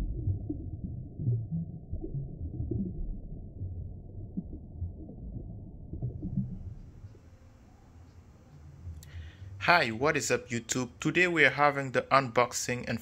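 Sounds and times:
low rumble with low notes: 0:00.0 - 0:10.2.

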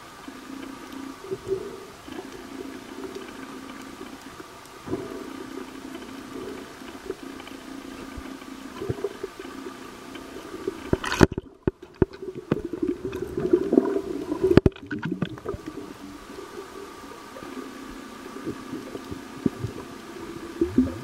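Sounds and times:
underwater hiss: 0:00.0 - 0:11.3, 0:12.2 - 0:21.0
muffled underwater water movement: 0:00.0 - 0:21.0
bubbling: 0:01.2 - 0:21.0.

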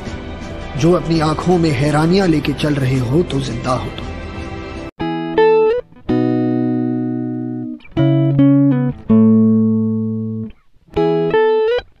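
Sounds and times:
slow guitar melody: 0:04.2 - 0:12.0.

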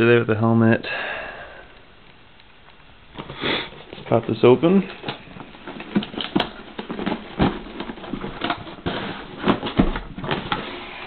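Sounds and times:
cardboard rubbing and scraping: 0:05.6 - 0:11.0.

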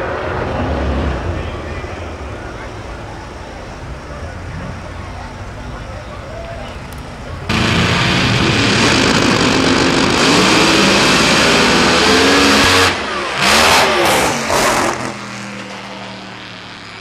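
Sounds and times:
low steady drone: 0:00.0 - 0:10.1
drag racing engines at full throttle: 0:00.0 - 0:17.0.

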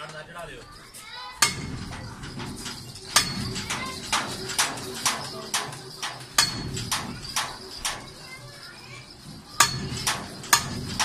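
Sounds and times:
metallic clanks of steel bar: 0:01.4 - 0:08.3, 0:09.3 - 0:11.0.

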